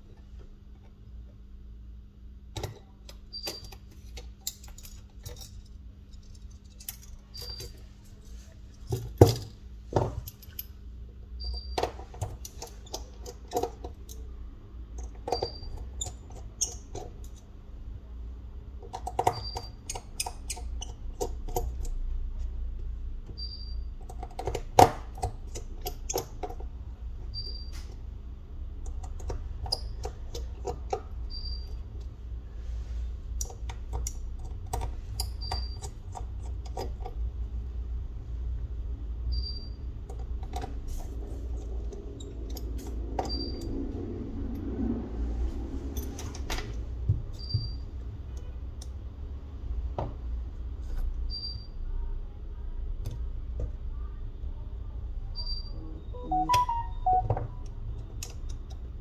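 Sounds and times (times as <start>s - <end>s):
low steady hum: 51.9s - 58.3s
faint high beep: 55.4s - 57.7s.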